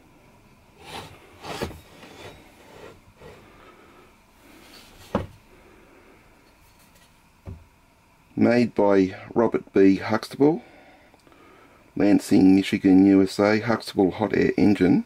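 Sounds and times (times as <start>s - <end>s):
engine model scraping on wood: 0.8s - 3.5s.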